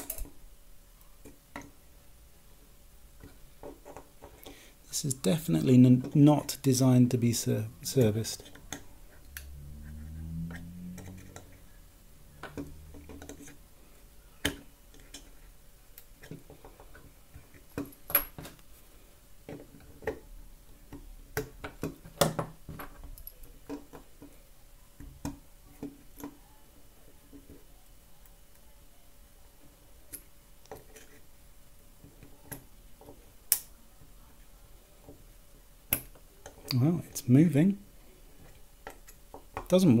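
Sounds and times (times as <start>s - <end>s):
low hum: 7.2s - 13.4s.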